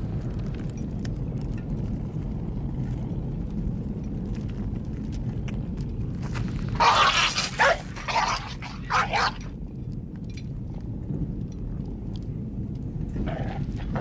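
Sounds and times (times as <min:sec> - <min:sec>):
low outdoor rumble: 0:00.0 - 0:14.0
dog snarling and barking: 0:06.8 - 0:09.5, 0:13.2 - 0:14.0.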